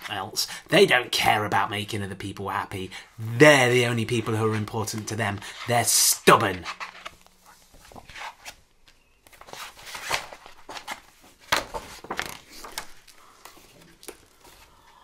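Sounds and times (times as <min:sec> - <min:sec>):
book pages rustling: 0:03.8 - 0:15.0.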